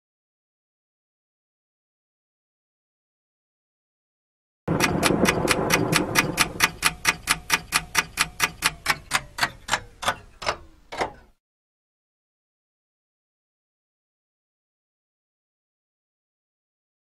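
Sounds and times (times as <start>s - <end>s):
low hum: 4.7s - 7.6s
rapid mechanical ticking: 4.7s - 10.6s.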